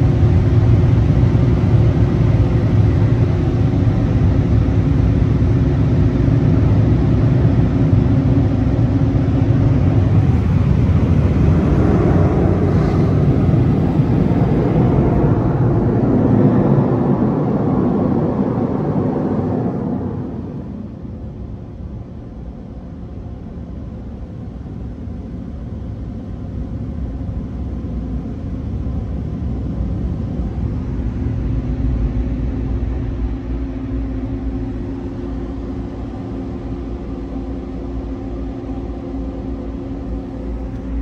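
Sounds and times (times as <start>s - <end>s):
air dryer blowers rushing: 9.4s - 21.3s.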